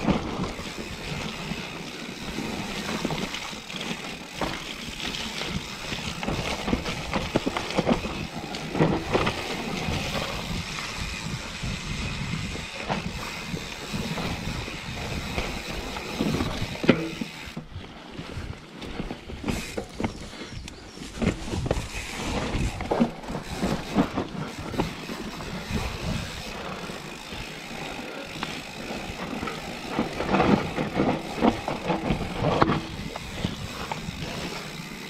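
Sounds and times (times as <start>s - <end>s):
bike rattling: 0.0s - 35.0s
bike tyres on dirt: 0.0s - 35.0s
wind on microphone: 9.2s - 17.2s.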